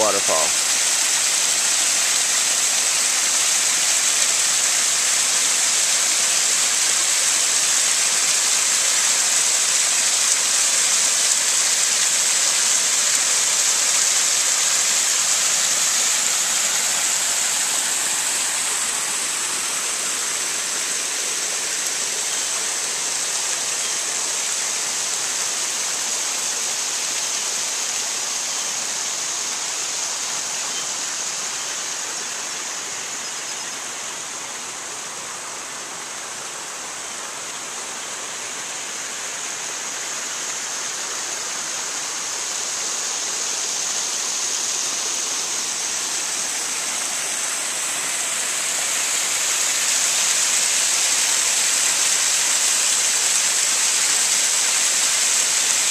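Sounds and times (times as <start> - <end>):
waterfall splashing over stone: 0.0 - 55.9.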